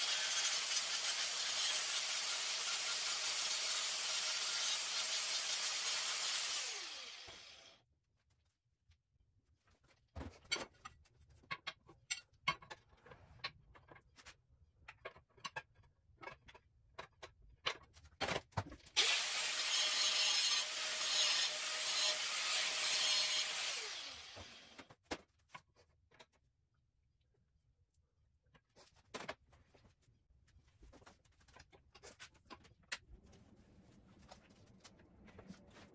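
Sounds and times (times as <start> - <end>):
power tool running: 0.0 - 7.8, 19.0 - 24.8
steel tubing clicking and knocking: 10.4 - 18.8.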